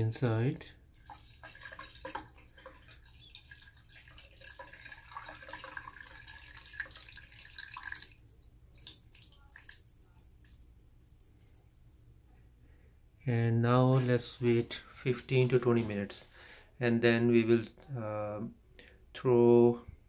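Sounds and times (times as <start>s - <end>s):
liquid trickling into drain: 0.0s - 12.0s
liquid dripping: 0.0s - 12.1s.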